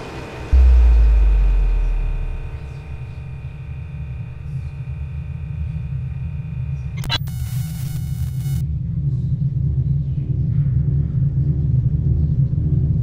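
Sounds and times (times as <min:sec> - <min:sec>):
low droning rumble: 0:00.0 - 0:13.0
sub-bass boom: 0:00.4 - 0:07.0
digital glitch noise: 0:00.6 - 0:08.6.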